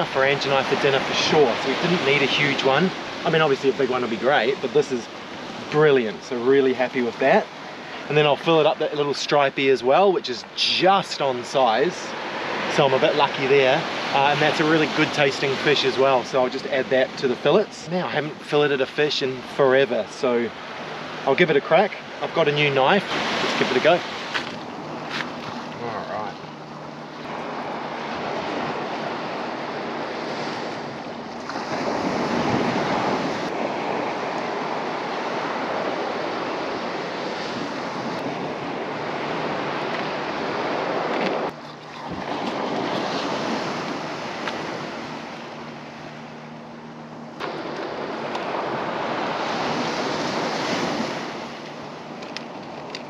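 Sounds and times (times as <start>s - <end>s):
surf breaking and washing: 0.0s - 53.0s
wind buffeting microphone: 22.2s - 53.0s.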